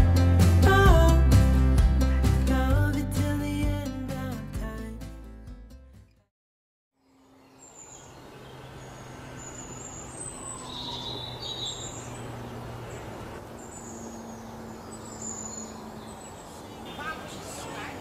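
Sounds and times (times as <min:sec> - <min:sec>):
birds chirping: 0:07.0 - 0:18.0
distant traffic hum: 0:07.1 - 0:18.0.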